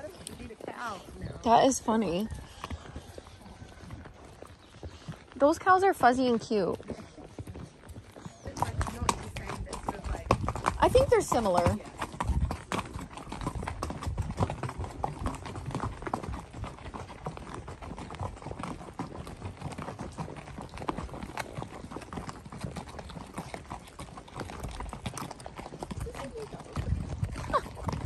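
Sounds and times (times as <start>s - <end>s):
horse hooves clip-clopping: 0.0s - 28.0s.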